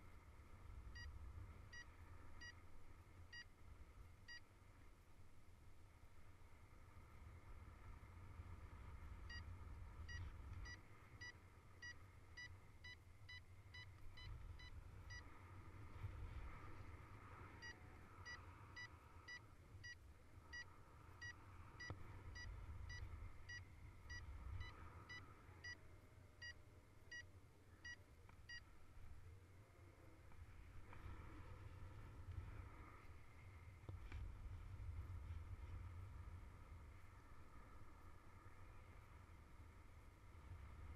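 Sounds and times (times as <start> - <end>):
wind rumble on microphone: 6.0 - 11.1, 14.0 - 19.2, 28.9 - 40.9
variometer beeping: 10.1 - 15.3, 17.6 - 25.8, 26.4 - 28.7.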